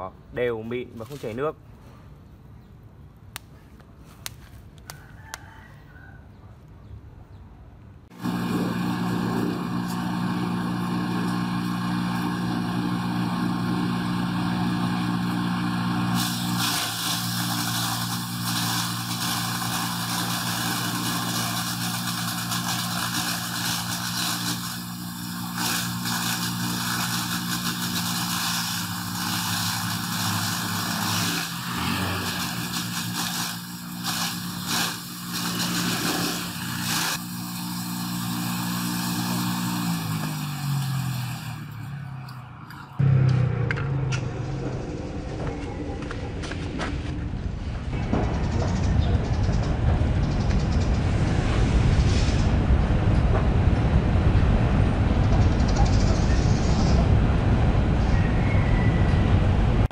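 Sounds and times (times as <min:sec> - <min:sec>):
electric motor humming: 0:08.1 - 0:42.0
blades shredding banana trunk: 0:08.1 - 0:42.2.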